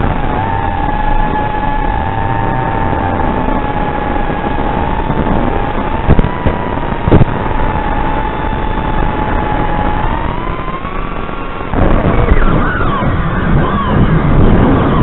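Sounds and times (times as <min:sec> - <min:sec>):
drone motors whining: 0:00.0 - 0:15.0
rush of air: 0:00.0 - 0:15.0.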